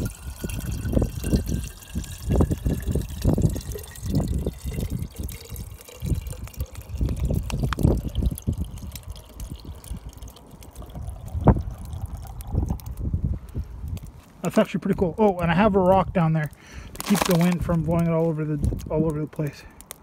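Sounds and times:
water trickling into metal bottle: 0:00.0 - 0:13.1.

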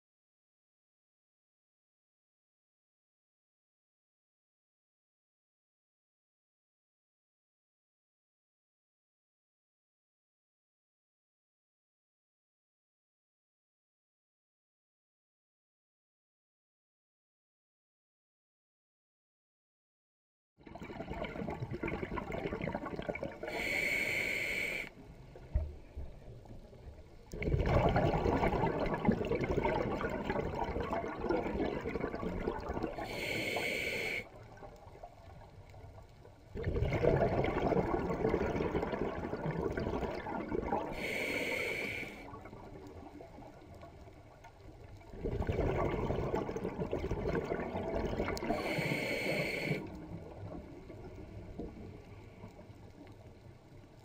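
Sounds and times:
rush of bubbles: 0:20.6 - 0:24.8, 0:27.3 - 0:44.0, 0:44.6 - 0:52.8
diver breathing through regulator: 0:23.4 - 0:25.0, 0:33.0 - 0:34.4, 0:40.9 - 0:42.3, 0:48.3 - 0:50.0.

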